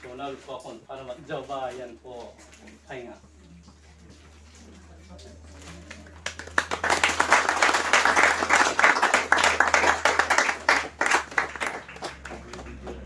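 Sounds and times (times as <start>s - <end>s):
people clapping: 5.7s - 13.0s.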